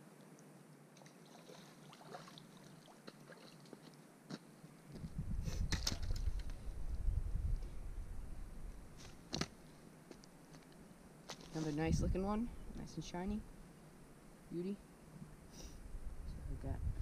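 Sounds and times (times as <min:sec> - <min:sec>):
faint water splashes: 0:00.1 - 0:04.1
net rumbling and rustling: 0:04.9 - 0:07.7.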